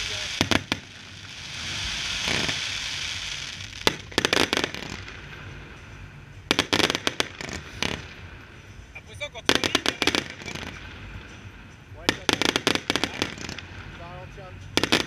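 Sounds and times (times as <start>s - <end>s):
fireworks bangs: 0.0s - 15.0s
rushing noise: 0.0s - 15.0s.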